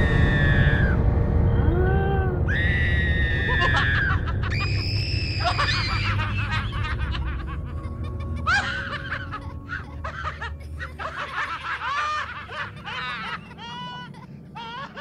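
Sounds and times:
low rumble: 0.0 - 15.0
high-pitched cartoon screams: 1.9 - 6.6.

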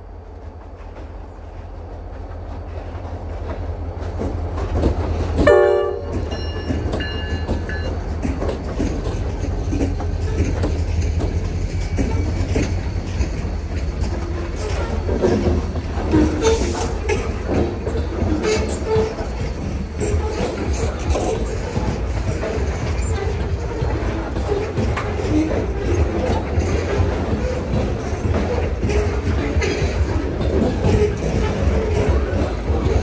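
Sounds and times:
diesel locomotive engines rumbling: 0.0 - 33.0
train wheels clattering over rail joints: 0.2 - 33.0
locomotive horn: 5.4 - 6.4.

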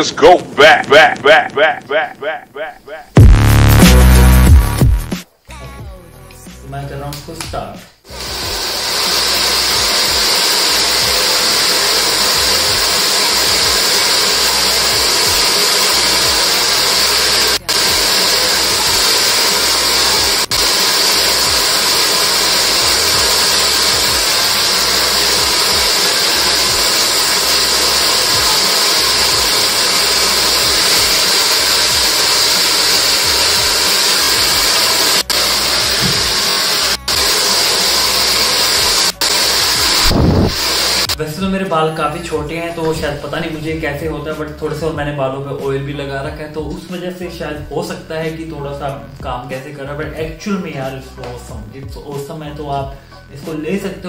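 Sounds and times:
hair dryer running: 8.1 - 41.2.

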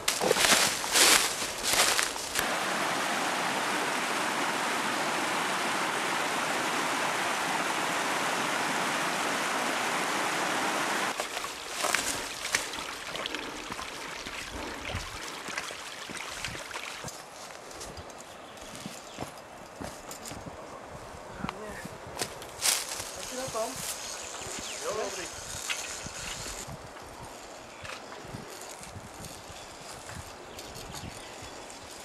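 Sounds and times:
footsteps on leaf litter: 0.0 - 2.5, 11.1 - 13.0, 21.8 - 25.6
stream rushing over rocks: 1.4 - 17.2.

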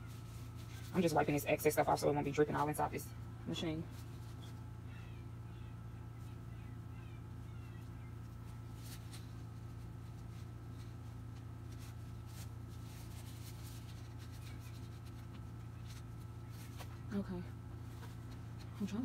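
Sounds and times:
steady low hum: 0.0 - 19.0
paper towel rustling: 7.8 - 19.0.

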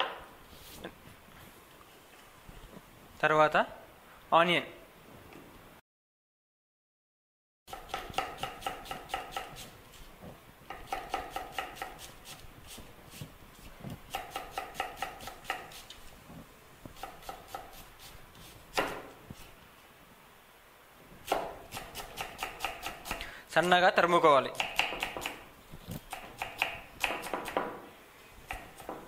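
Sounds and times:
knife chopping on wooden board: 7.7 - 9.8, 10.7 - 12.4, 14.1 - 15.9, 17.0 - 17.9, 18.7 - 19.2, 21.2 - 23.2, 24.6 - 25.4, 26.0 - 27.8, 28.5 - 29.0.

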